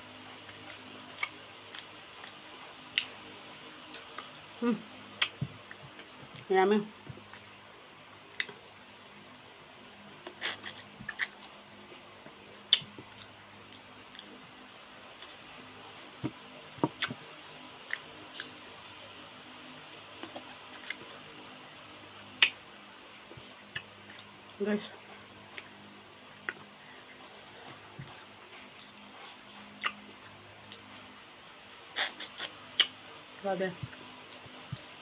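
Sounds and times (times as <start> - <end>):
faint room hum: 0.0 - 35.0.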